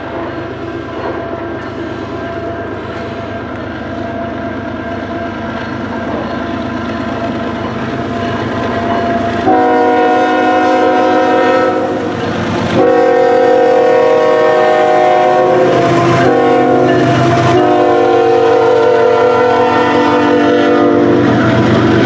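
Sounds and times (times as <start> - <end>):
diesel locomotive engine and rolling: 0.0 - 22.0
train horn blast: 9.4 - 12.1, 12.8 - 21.5.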